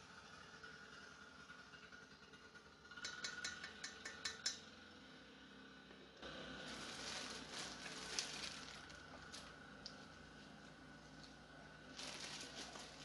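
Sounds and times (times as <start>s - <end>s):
soft steady rustling: 6.6s - 13.0s.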